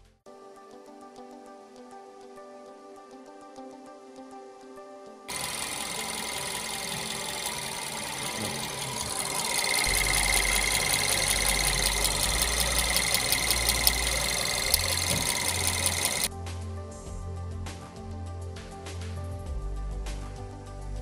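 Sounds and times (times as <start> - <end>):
background music: 0.3 - 21.0
engine mechanical ticking: 5.3 - 16.3.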